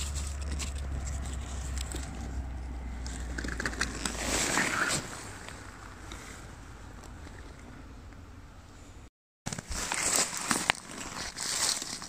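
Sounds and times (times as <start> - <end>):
pine needles and leaves rustling: 0.0 - 6.4, 9.5 - 12.0.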